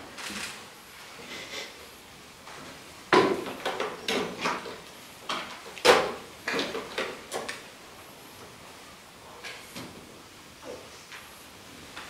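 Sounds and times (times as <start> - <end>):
sharp knocks and clatters: 3.1 - 7.6.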